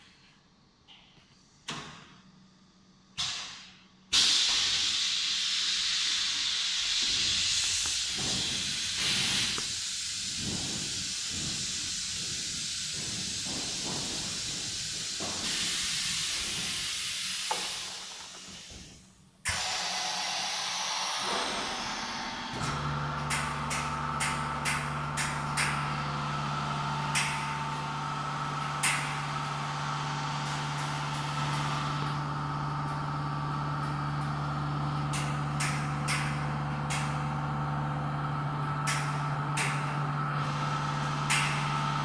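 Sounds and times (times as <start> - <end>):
machine air hissing: 1.3 - 42.0.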